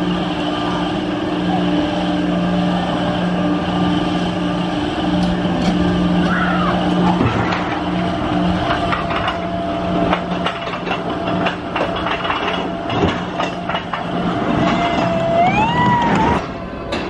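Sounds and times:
machine whine: 0.0 - 17.0
ride machinery humming: 0.0 - 17.0
clicks and clanks: 8.6 - 15.2.

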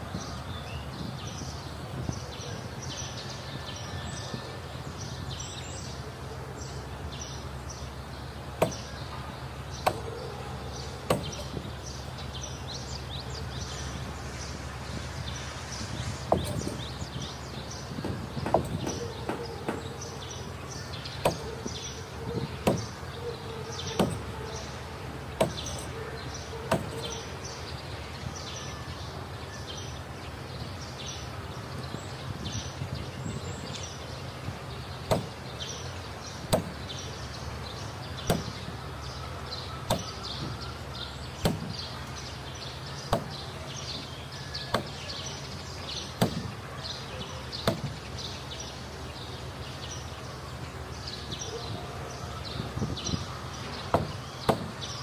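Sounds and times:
mallet striking wooden hull: 8.6 - 8.9, 11.1 - 11.6, 16.3 - 16.8, 18.0 - 19.9, 22.6 - 22.9, 24.0 - 24.3, 25.4 - 25.9, 26.7 - 27.0, 35.1 - 35.4, 36.5 - 36.8, 38.3 - 38.6, 39.9 - 40.5, 41.4 - 41.8, 43.1 - 43.3, 44.7 - 45.0, 46.2 - 46.5, 47.6 - 48.0, 53.9 - 54.8.

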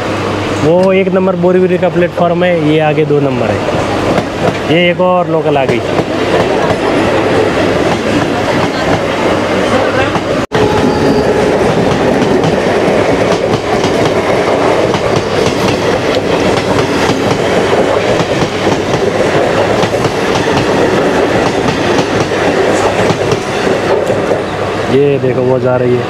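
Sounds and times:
electric train rumbling past: 0.0 - 26.0.

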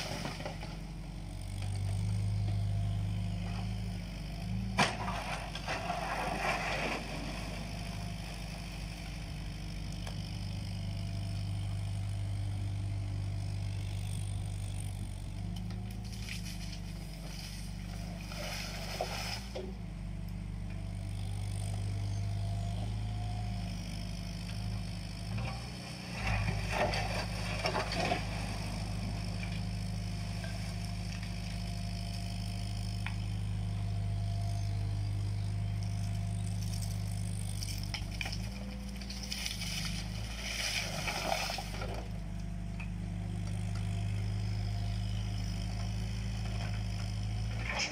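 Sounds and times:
diesel engine running: 0.0 - 47.9
bucket scraping and clattering: 4.8 - 7.4.

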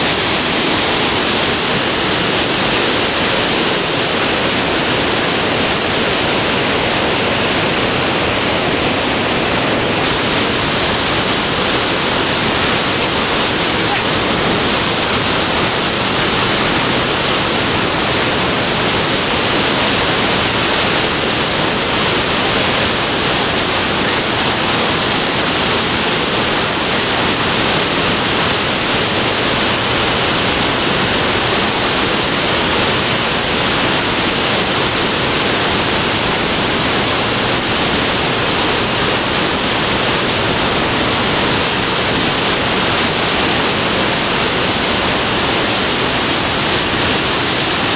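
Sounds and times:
whitewater rushing: 0.0 - 47.9.

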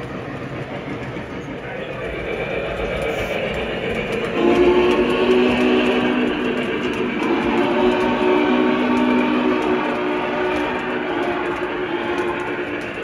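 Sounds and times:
train rumbling along track: 0.0 - 13.0
chime steam whistle: 4.3 - 13.0.

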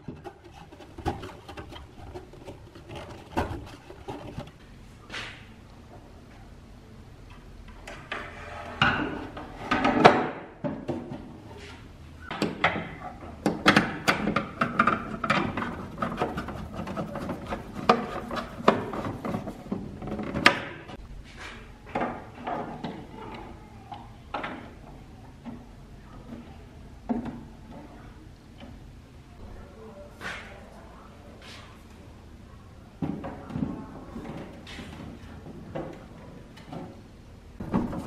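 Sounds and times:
plastic parts clicking and knocking: 0.0 - 4.6, 12.3 - 21.0.

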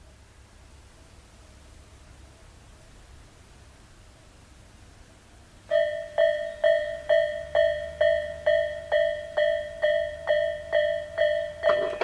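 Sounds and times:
level crossing warning bell ringing: 5.7 - 12.0.

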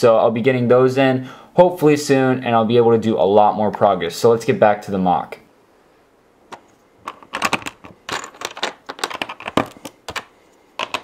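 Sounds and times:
plastic bricks clicking and rattling: 6.5 - 11.0.

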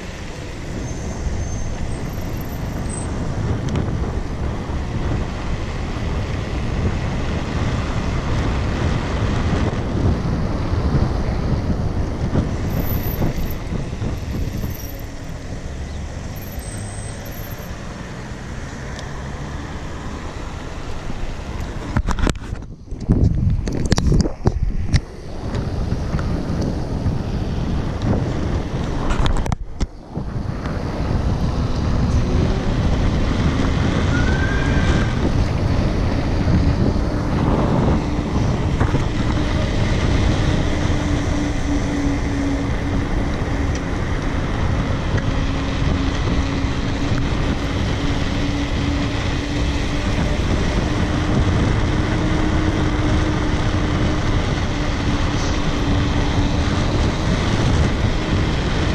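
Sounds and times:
wind rushing over microphone: 0.0 - 58.9.

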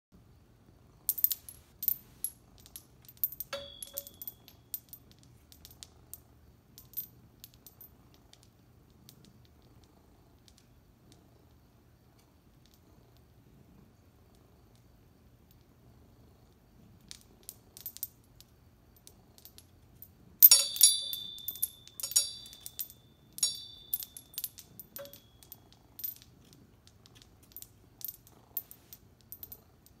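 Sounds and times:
wind chime tinkling: 3.5 - 4.6, 20.4 - 25.5.

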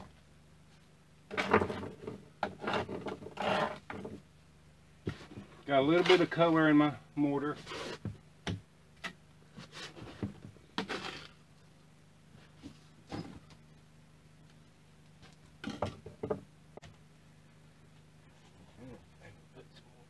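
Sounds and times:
faint steady hum: 0.0 - 20.0
trowel scraping mortar: 2.4 - 3.9, 10.8 - 11.4.

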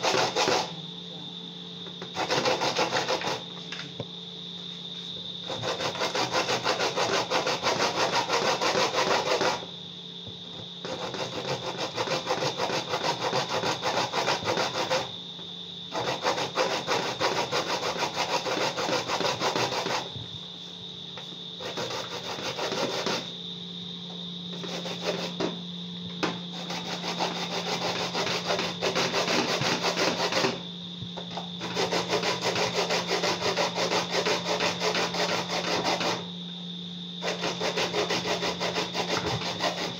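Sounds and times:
corn scraping on metal grater: 0.0 - 0.7, 2.1 - 3.4, 5.5 - 9.7, 10.8 - 15.1, 15.9 - 20.1, 21.6 - 23.3, 26.5 - 30.6, 31.6 - 36.3, 37.2 - 39.9.

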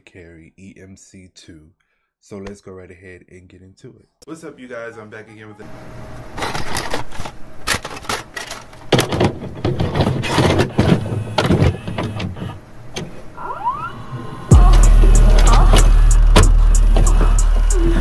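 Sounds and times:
static tape noise bursts: 14.4 - 18.0.

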